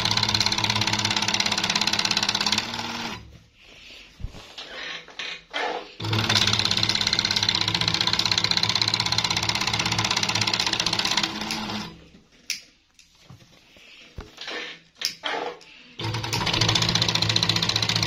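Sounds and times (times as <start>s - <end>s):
sewing machine running: 0.0s - 3.3s, 6.0s - 12.0s, 16.0s - 18.0s.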